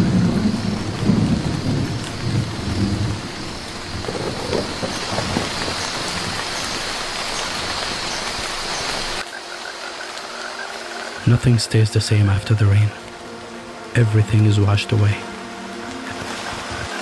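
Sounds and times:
thunder rumble: 0.0s - 9.2s
heavy rain on foliage: 0.0s - 17.0s.

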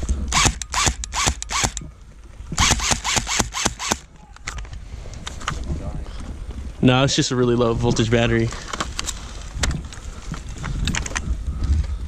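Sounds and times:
airsoft rifle firing bursts: 0.3s - 1.8s, 2.6s - 4.0s.

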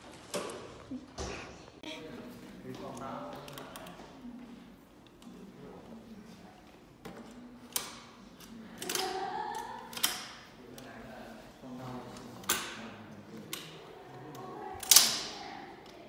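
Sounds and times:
metal wheelchair frame clicking: 7.1s - 11.0s, 12.1s - 16.0s.

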